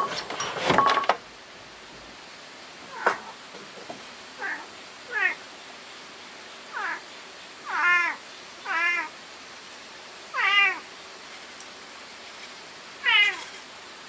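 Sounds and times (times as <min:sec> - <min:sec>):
cat meowing: 0:04.4 - 0:05.4, 0:06.7 - 0:07.0, 0:07.7 - 0:09.1, 0:10.3 - 0:10.9, 0:13.0 - 0:13.5.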